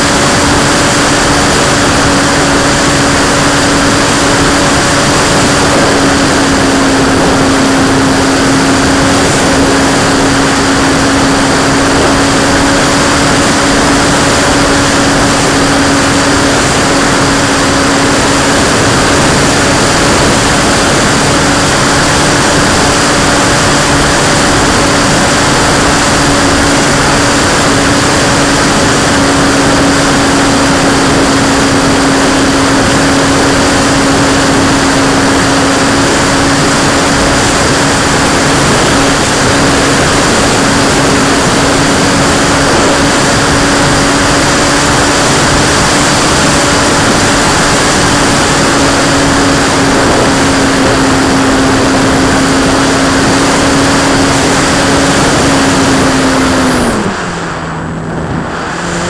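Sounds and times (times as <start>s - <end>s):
model plane motor and propeller: 0.0s - 57.6s
wind rush: 0.0s - 59.0s.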